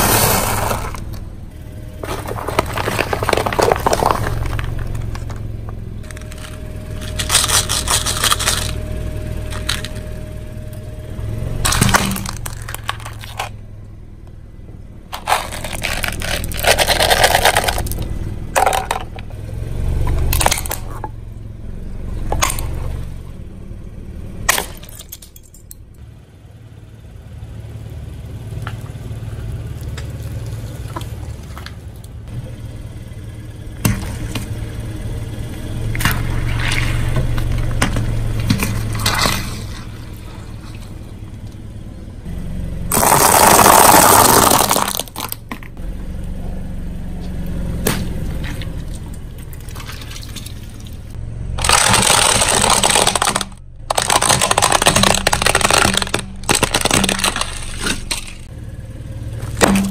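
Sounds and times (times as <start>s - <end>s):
tyre crushing plastic and fruit: 0.0s - 10.2s, 11.6s - 13.6s, 15.1s - 19.3s, 20.0s - 21.1s, 24.4s - 25.5s, 42.9s - 45.8s, 51.6s - 58.5s, 59.4s - 59.9s
car engine idling hum: 0.0s - 59.9s.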